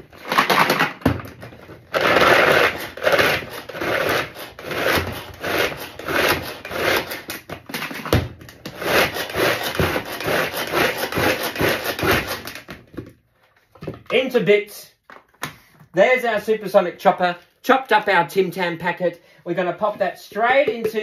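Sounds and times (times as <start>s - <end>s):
rasping pull cord: 1.9s - 7.4s, 8.6s - 12.7s.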